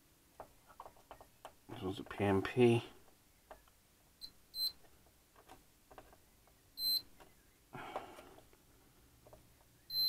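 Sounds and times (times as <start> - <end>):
multimeter continuity beeps: 4.2 - 4.8, 6.8 - 7.1.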